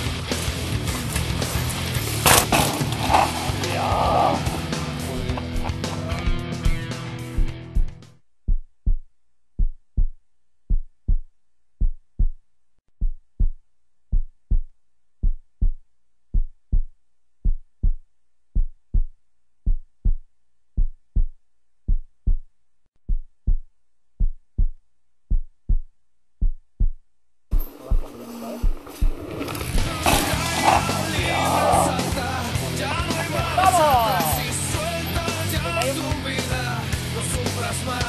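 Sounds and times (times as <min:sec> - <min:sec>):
heartbeat thumps: 0:04.6 - 0:12.4, 0:13.0 - 0:31.4.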